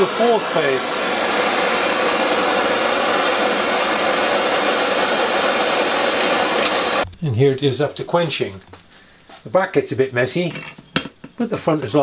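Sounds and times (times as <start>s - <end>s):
blowtorch flame hissing: 0.0s - 7.0s.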